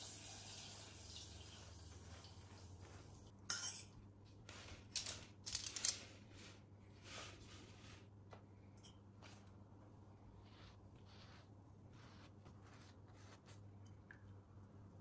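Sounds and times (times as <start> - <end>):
pastry brush dabbing: 10.2 - 13.9.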